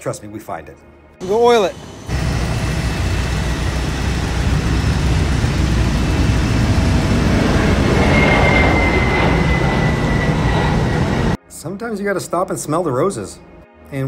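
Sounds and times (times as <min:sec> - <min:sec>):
high jet engine whine: 0:01.2 - 0:11.4
jet engines at takeoff thrust: 0:01.2 - 0:11.4.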